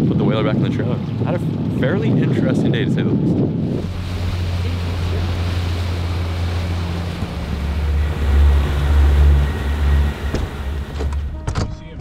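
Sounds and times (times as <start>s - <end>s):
wind: 0.0s - 12.0s
water noise: 3.4s - 11.4s
outboard motor idling: 3.6s - 11.4s.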